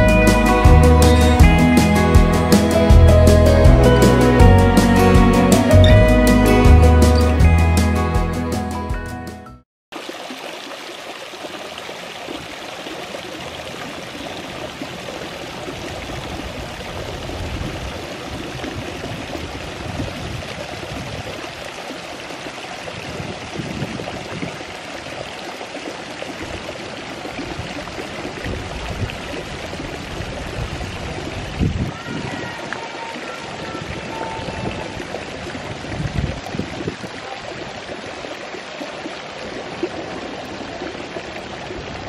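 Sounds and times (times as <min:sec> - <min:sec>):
fountain water trickling and splashing: 0:09.9 - 0:42.0.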